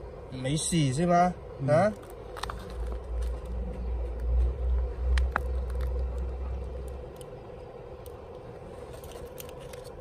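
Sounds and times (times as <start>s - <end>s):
faint steady hum: 0.0s - 10.0s
low rumble: 2.2s - 8.8s.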